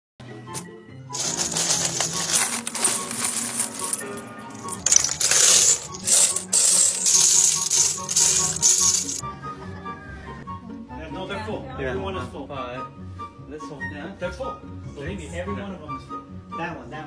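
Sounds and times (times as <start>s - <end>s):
background music: 0.2s - 17.0s
metal bottle caps clinking: 1.2s - 9.2s.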